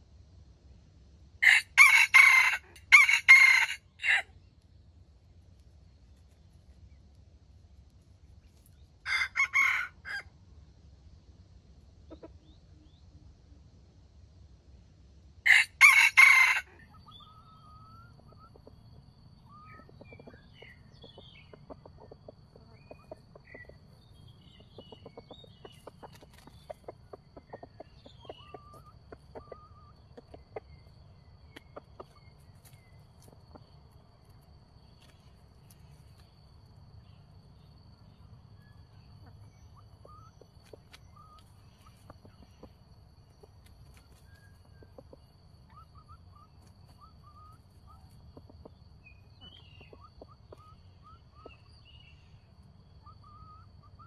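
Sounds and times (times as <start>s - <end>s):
rooster crowing: 1.4s - 4.3s, 9.0s - 10.3s, 15.5s - 17.8s
faint clucks and short calls: 5.4s - 13.9s, 15.8s - 54.0s.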